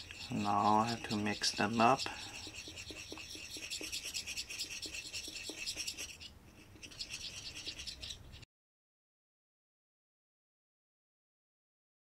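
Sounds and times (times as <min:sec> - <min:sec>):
stirrer scraping metal cup: 0:00.0 - 0:08.2.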